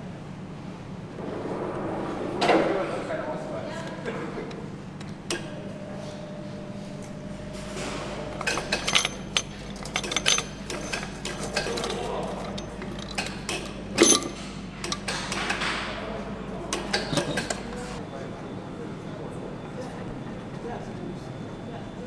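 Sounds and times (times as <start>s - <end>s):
steady factory hum: 0.0s - 22.0s
metallic clinks of engine parts: 8.4s - 15.2s.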